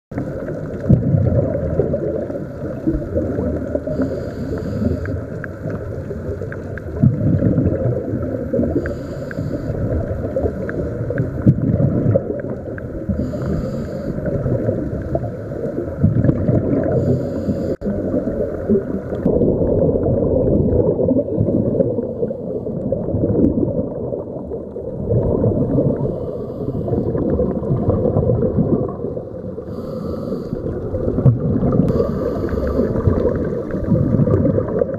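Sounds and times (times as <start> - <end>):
underwater bubbles rushing: 0.1 - 34.9
regulator hiss: 3.9 - 5.2, 13.2 - 14.2, 31.9 - 33.1.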